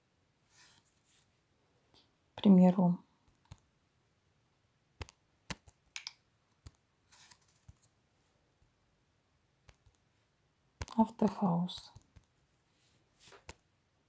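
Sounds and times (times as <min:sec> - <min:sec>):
soft rustle: 0:00.4 - 0:01.4, 0:11.8 - 0:13.6
fingers tapping on touchscreen: 0:05.0 - 0:07.9, 0:09.6 - 0:10.0, 0:10.8 - 0:12.3.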